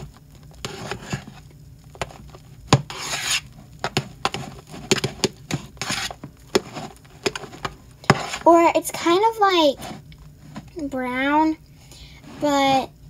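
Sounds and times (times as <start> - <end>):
spatula swishing through foam: 2.8 - 3.5, 4.3 - 8.5, 9.6 - 10.7
spatula tapping bowl: 3.8 - 8.4.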